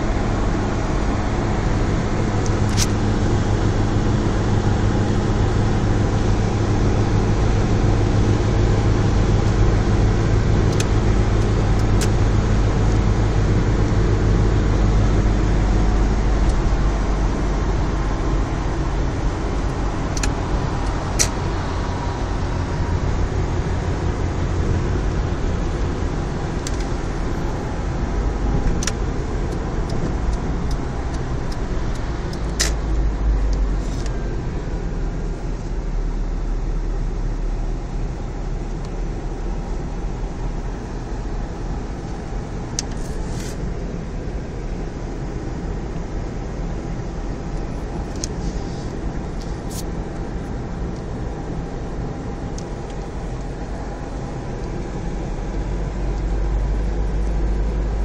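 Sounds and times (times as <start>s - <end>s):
car road noise from inside: 0.0s - 58.0s
sharp clicks: 20.1s - 21.4s.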